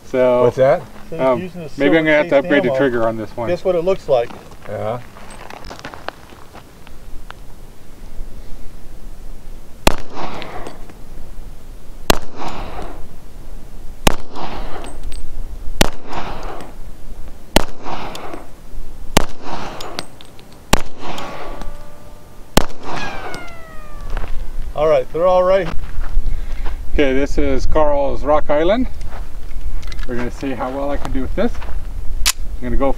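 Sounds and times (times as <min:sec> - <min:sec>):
pistol shots with echo: 0:09.8 - 0:10.8, 0:12.1 - 0:13.0, 0:14.0 - 0:15.0, 0:15.8 - 0:16.7, 0:17.5 - 0:18.5, 0:19.2 - 0:20.1, 0:20.7 - 0:21.8, 0:22.5 - 0:24.0.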